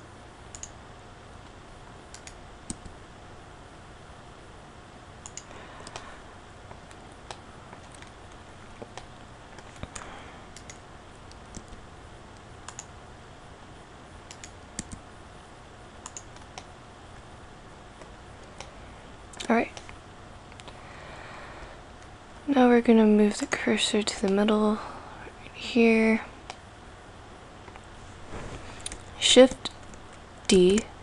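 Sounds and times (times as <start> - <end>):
faint hum and hiss: 0.0 - 31.0
keyboard and mouse clicks: 0.5 - 0.8, 2.1 - 3.0, 5.2 - 6.0, 6.7 - 8.2, 8.8 - 11.8, 12.6 - 12.9, 14.3 - 15.0, 16.0 - 16.7.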